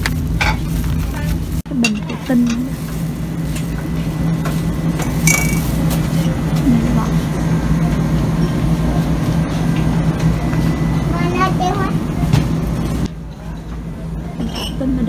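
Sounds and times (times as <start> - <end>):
steady low hum: 0.0 - 15.0
glass jar clinking: 5.0 - 5.7.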